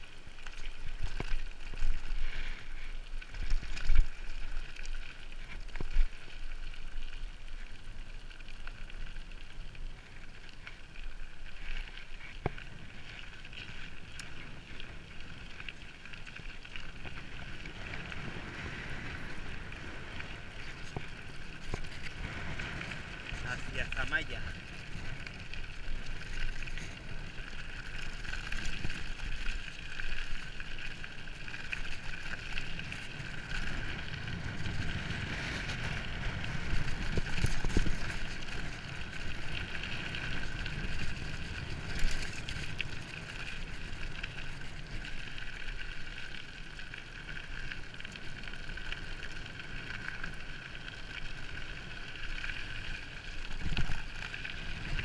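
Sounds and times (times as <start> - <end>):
bike tyres rolling on rough road: 0.0 - 55.0
bike jolting over bumps: 12.2 - 46.0.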